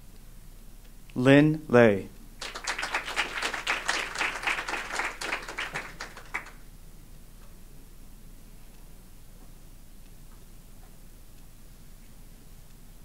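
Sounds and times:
audience applauding: 2.4 - 6.6.

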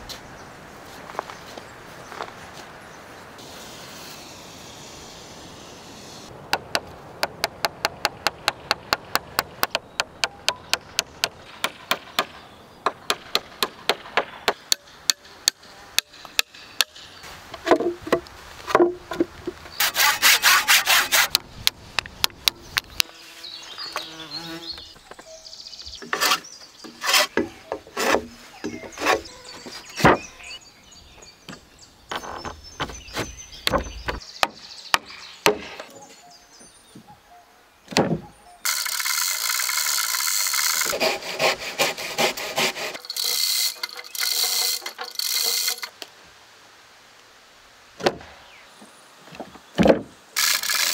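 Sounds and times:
wooden knocks: 17.6 - 19.6
rasping sawing burst: 19.8 - 21.4, 38.7 - 45.9
sharp even strokes on timber: 19.8 - 21.4, 26.0 - 30.4, 38.7 - 45.9.

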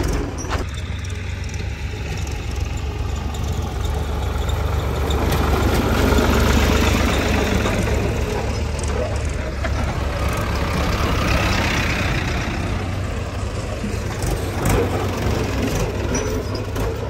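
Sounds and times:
diesel tractor engine running: 0.0 - 17.0.

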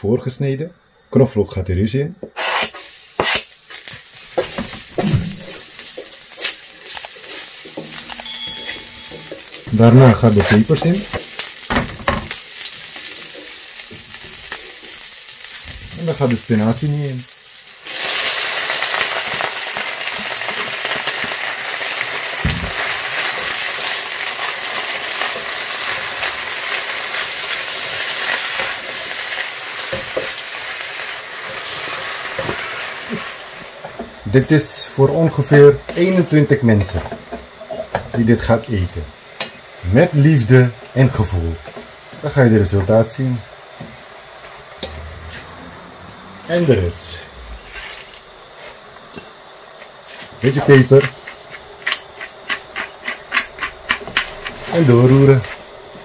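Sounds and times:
knife scraping cutting board: 2.4 - 3.5, 50.9 - 54.8
garlic sizzling in hot oil: 2.4 - 34.5.

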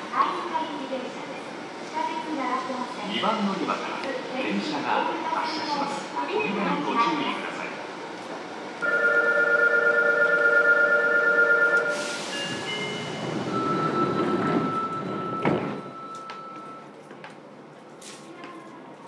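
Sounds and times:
train doors closing thud: 14.1 - 15.9.

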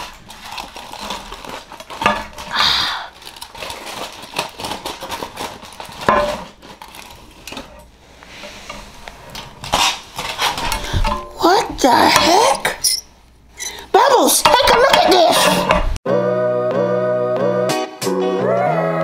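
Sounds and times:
aluminium foil crinkling: 0.0 - 7.9, 9.1 - 10.9.

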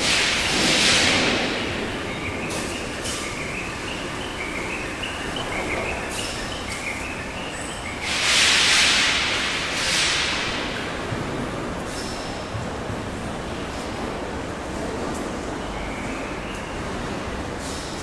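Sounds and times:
machinery din: 0.0 - 10.8
loud hissing blast: 8.0 - 10.8.

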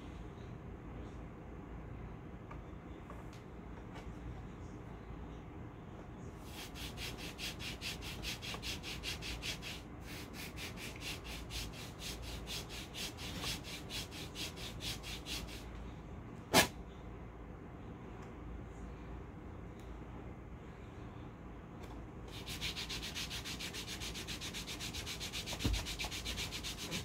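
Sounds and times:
hand rubbing wax strip: 6.4 - 15.7, 22.3 - 27.0.

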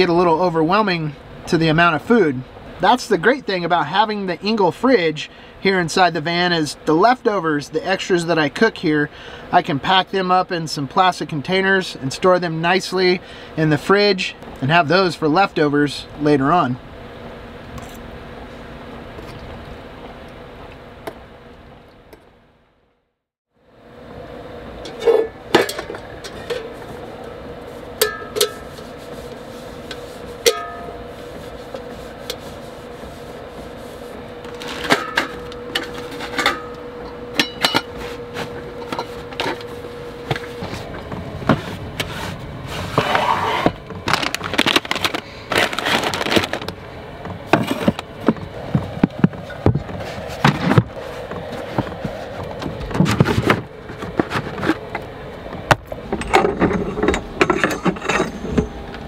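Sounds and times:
steady hum: 0.0 - 23.0, 23.6 - 59.0
nylon sack rustling: 44.0 - 46.7.

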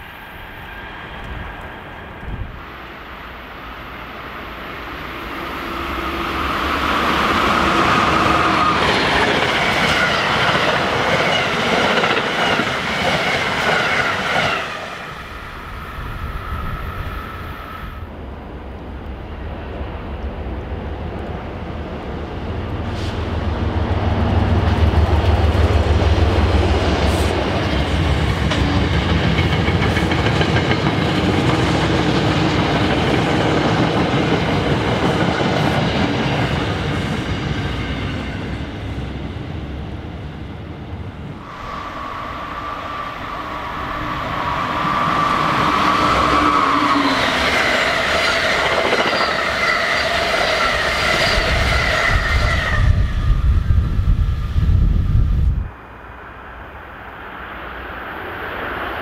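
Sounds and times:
train rumbling: 0.0 - 59.0
train wheels clacking on rails: 5.3 - 15.2, 24.3 - 39.0, 43.3 - 52.7.

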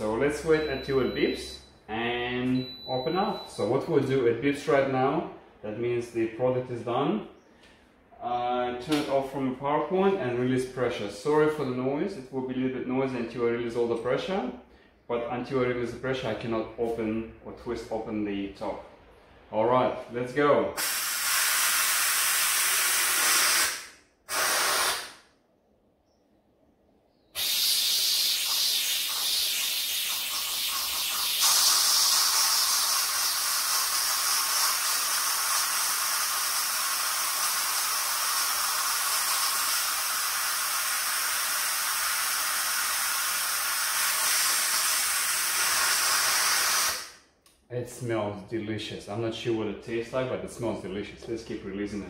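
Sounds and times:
steam hissing from valve: 20.8 - 25.2, 27.4 - 47.2.

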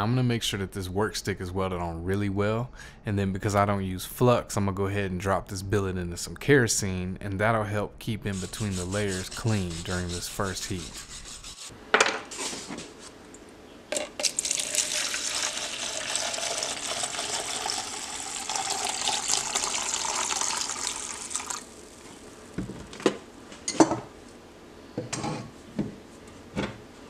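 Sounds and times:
liquid pouring into plastic cup: 14.0 - 22.1.

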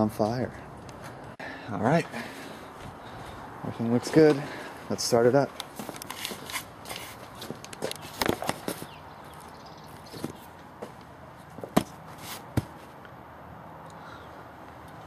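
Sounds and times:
low steady background noise: 0.0 - 15.0
footsteps: 10.0 - 13.0.

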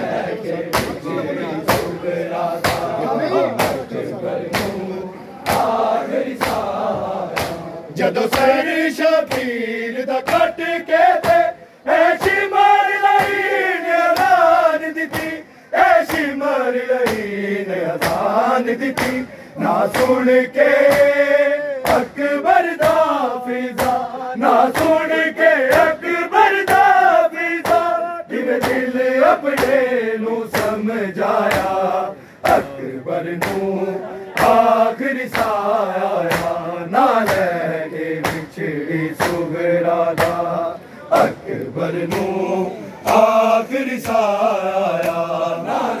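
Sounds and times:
men chanting a lament in unison: 0.0 - 46.0
hands slapping bare chests: 0.7 - 1.0, 2.6 - 3.0, 3.6 - 3.9, 4.5 - 4.8, 5.4 - 7.7, 8.3 - 8.6, 9.3 - 9.6, 10.2 - 11.5, 13.1 - 13.4, 14.0 - 14.5, 17.0 - 17.3, 17.9 - 20.2, 20.8 - 21.2, 21.8 - 22.2, 22.8 - 24.1, 24.7 - 25.0, 27.6 - 28.0, 28.6 - 29.9, 30.5 - 30.8, 31.4 - 31.8, 32.4 - 33.7, 34.3 - 38.6, 39.2 - 39.5, 40.1 - 40.5, 43.0 - 43.4, 44.0 - 45.3.

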